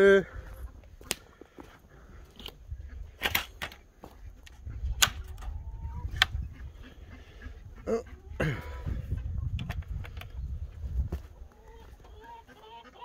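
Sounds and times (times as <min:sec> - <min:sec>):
footsteps on snow: 0:00.5 - 0:02.6, 0:10.7 - 0:12.1
wind rumble on microphone: 0:02.5 - 0:03.2, 0:04.2 - 0:12.0.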